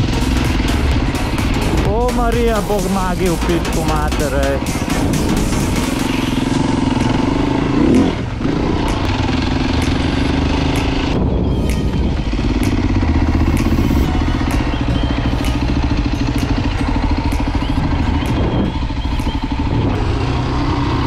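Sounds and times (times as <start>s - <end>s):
dirt bike engine running: 0.0s - 21.0s
sharp clicks: 8.8s - 20.1s.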